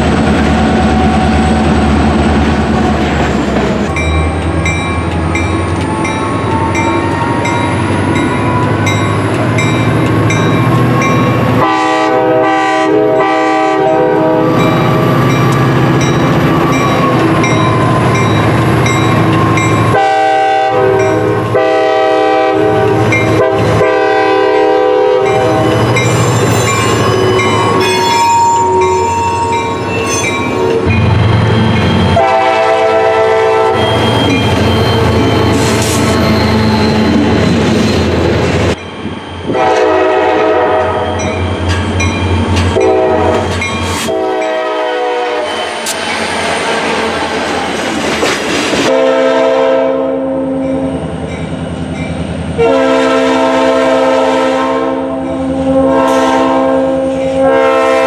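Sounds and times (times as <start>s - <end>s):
diesel locomotive engine rumbling: 0.0s - 58.0s
bell ringing: 4.0s - 11.4s, 25.3s - 31.0s
train air horn blasts: 11.2s - 15.2s, 19.2s - 31.0s, 32.0s - 37.1s, 39.5s - 41.3s, 42.7s - 46.0s, 48.8s - 50.9s, 52.6s - 58.0s.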